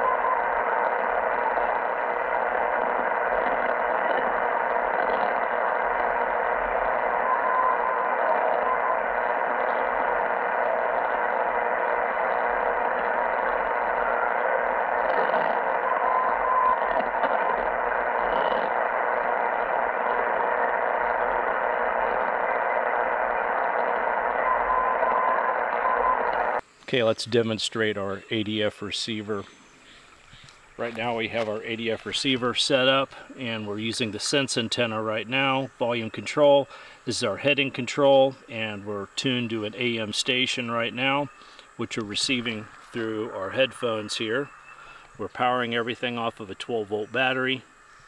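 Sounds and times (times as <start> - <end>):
radio static hiss: 0.0 - 48.0.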